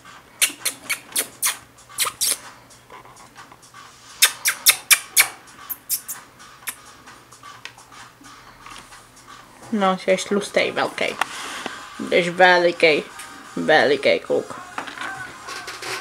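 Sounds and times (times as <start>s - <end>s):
rat clicking and scratching cage bars: 15.5s - 16.0s.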